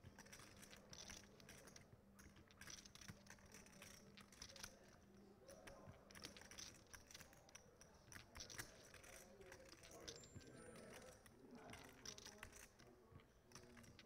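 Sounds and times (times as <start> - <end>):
poker chips clicking: 0.1 - 4.9, 6.1 - 10.2, 10.8 - 12.8.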